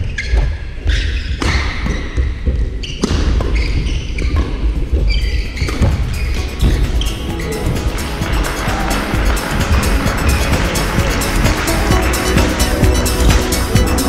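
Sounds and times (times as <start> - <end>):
shoe squeaks: 0.0 - 8.9
footfalls on hall floor: 0.0 - 14.0
low hall rumble: 4.5 - 14.0.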